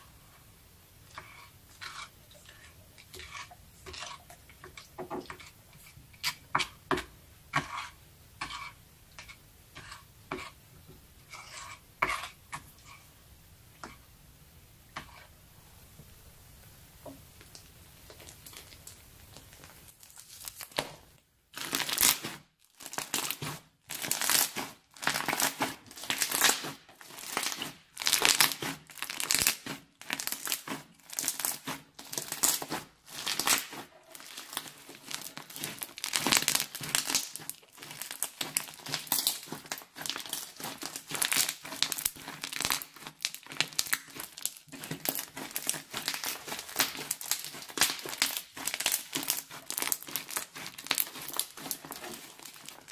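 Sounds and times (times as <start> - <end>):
hands squishing beaded slime: 17.4 - 52.9.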